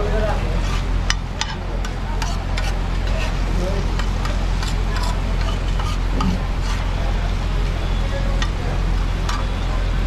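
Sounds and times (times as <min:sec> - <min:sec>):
frying oil: 0:00.0 - 0:10.0
steady low hum: 0:00.0 - 0:10.0.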